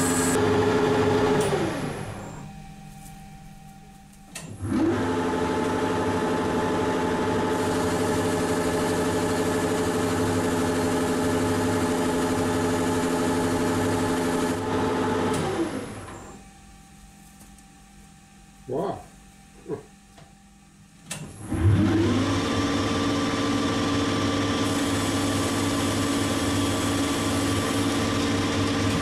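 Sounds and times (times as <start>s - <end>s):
lathe motor with gear whine: 0.0s - 2.6s, 4.4s - 16.4s, 21.2s - 29.0s.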